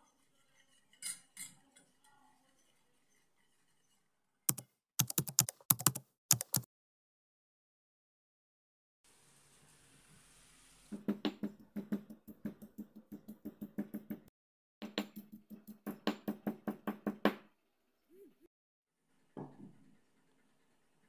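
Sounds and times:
stone pestle pounding in mortar: 11.0s - 17.4s.

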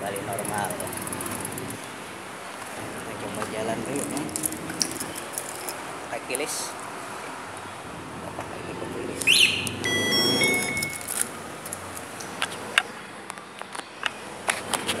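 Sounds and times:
electronic alarm chirp: 9.3s - 11.1s
steady beeping: 9.4s - 11.2s.

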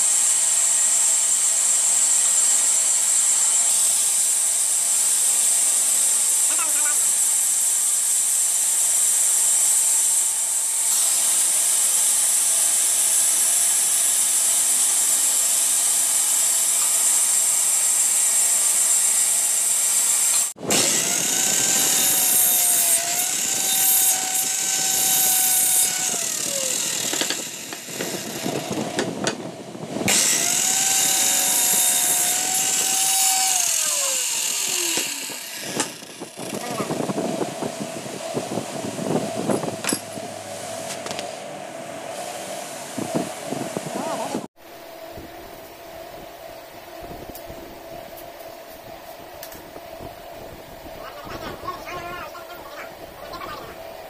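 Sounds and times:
band saw cutting wood: 0.0s - 37.3s
circular saw whining: 0.0s - 52.4s.

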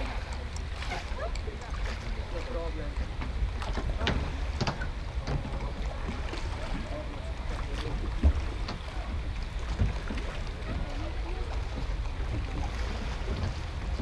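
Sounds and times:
distant voices chatter: 0.0s - 14.0s
wind buffeting microphone: 3.0s - 14.0s.

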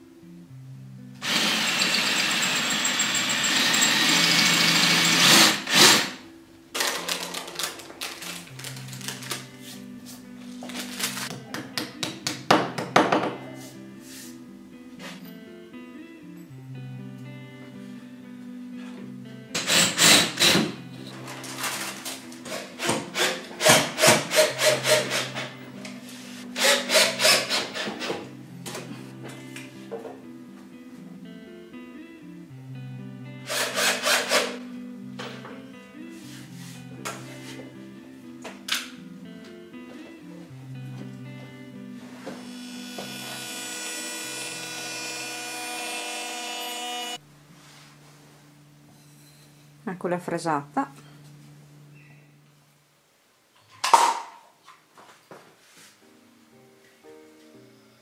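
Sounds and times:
electric drill drilling into wall: 1.2s - 6.2s, 19.6s - 20.7s, 26.6s - 28.1s, 33.5s - 34.6s, 42.5s - 47.2s.

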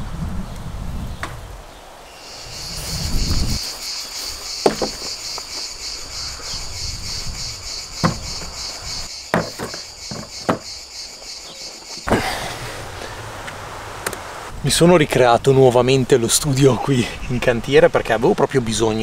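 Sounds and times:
insects chirring: 2.0s - 12.1s
sharp knocks: 4.6s - 5.2s, 8.0s - 8.6s, 9.3s - 10.7s.

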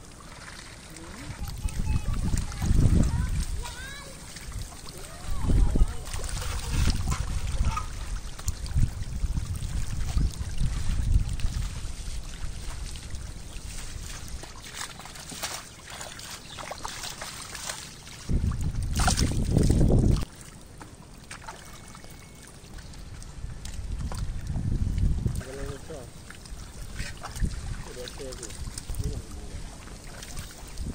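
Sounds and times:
pond water splashing and sloshing: 0.0s - 30.9s
wind rumbling on microphone: 0.9s - 14.8s, 17.6s - 20.3s, 22.8s - 30.9s.

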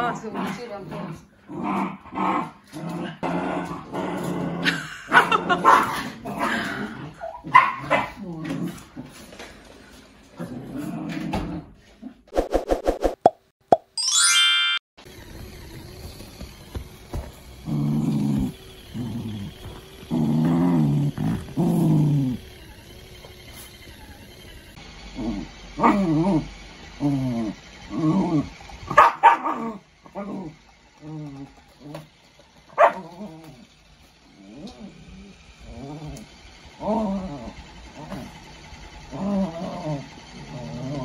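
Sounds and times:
dog growling: 0.0s - 9.0s, 10.4s - 11.7s, 17.6s - 22.6s, 25.2s - 28.8s, 29.4s - 32.1s, 32.8s - 33.7s, 34.4s - 38.4s, 39.0s - 41.0s
dogs barking and yipping: 4.9s - 6.1s, 7.2s - 8.2s, 28.8s - 29.8s, 32.7s - 33.2s.

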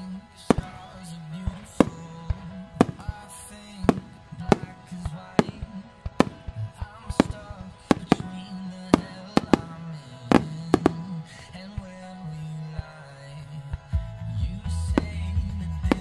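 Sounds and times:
music with long held notes: 0.0s - 16.0s
firework shells bursting: 0.4s - 11.2s.

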